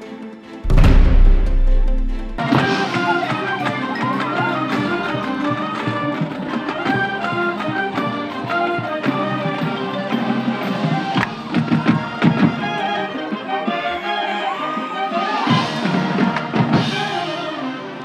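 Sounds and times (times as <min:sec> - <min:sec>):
drum strikes: 0:00.6 - 0:03.2
marching band playing: 0:00.6 - 0:04.0.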